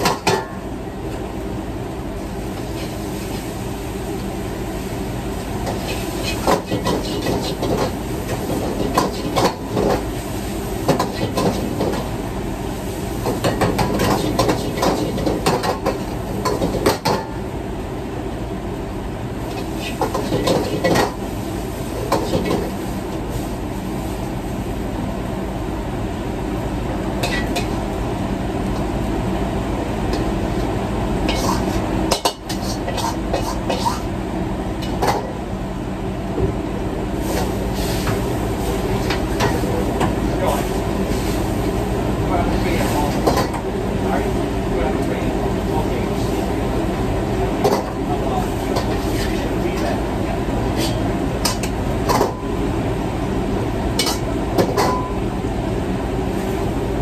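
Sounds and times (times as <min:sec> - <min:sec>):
wok range and exhaust hood: 0:00.0 - 0:57.0
spatula scraping a wok: 0:05.6 - 0:10.0, 0:19.6 - 0:21.1, 0:31.3 - 0:34.1, 0:47.8 - 0:49.5, 0:50.7 - 0:51.7.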